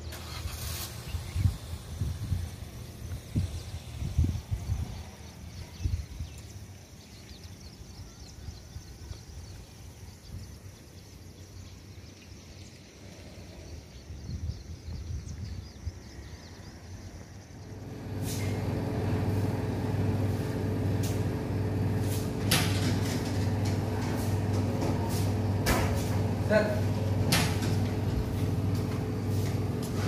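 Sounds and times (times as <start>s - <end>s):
wind rumbling on microphone: 0.9s - 6.4s, 14.0s - 16.3s
motor hum: 17.7s - 30.0s.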